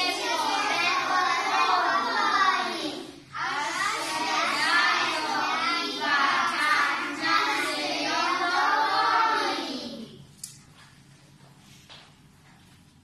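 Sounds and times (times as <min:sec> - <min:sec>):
young children singing: 0:00.0 - 0:10.3.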